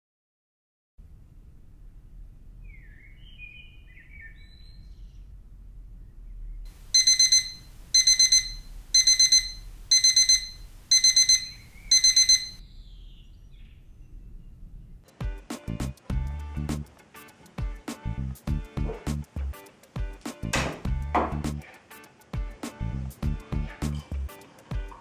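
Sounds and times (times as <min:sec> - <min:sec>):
bird chirping: 0:02.6 - 0:05.4, 0:06.0 - 0:15.0
rapid high alarm beeps: 0:06.9 - 0:12.6.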